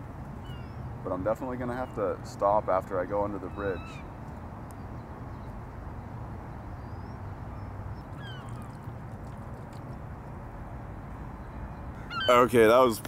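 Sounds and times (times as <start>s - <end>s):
rushing outdoor background noise: 0.0s - 13.0s
high bird calls: 0.4s - 2.2s, 3.2s - 4.2s, 6.5s - 9.0s, 11.3s - 12.9s.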